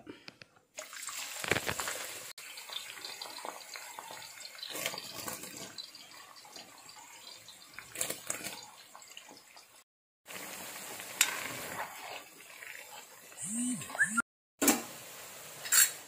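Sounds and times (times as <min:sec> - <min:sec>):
onions deep-frying in oil: 0:00.7 - 0:13.4, 0:14.6 - 0:16.0.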